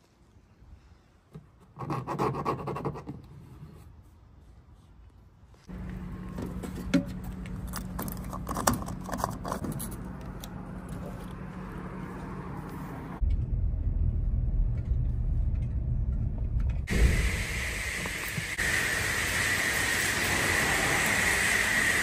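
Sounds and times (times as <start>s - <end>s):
steady hum: 13.4s - 22.0s.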